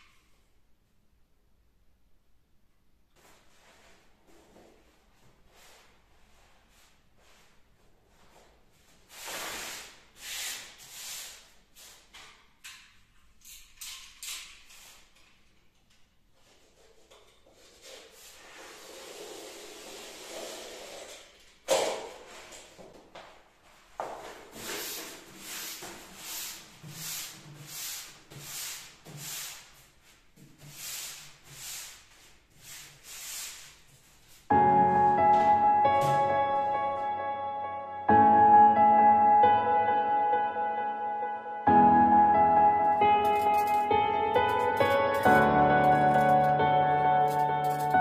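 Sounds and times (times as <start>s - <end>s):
wallpaper roll swishes: 3.2s - 12.2s, 16.4s - 21.4s, 23.8s - 36.7s
wallpaper rustling and scraping: 3.2s - 13.1s, 13.9s - 15.6s, 16.3s - 37.0s, 42.8s - 48.0s.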